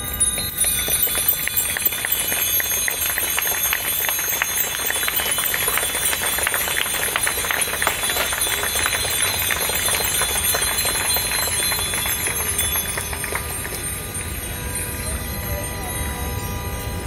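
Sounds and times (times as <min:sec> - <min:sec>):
crowd clapping: 0:00.0 - 0:16.2.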